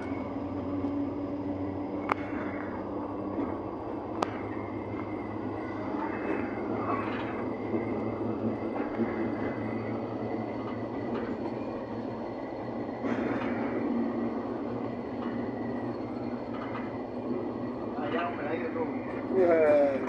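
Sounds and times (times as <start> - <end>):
locomotive engine rumble: 0.0 - 20.0.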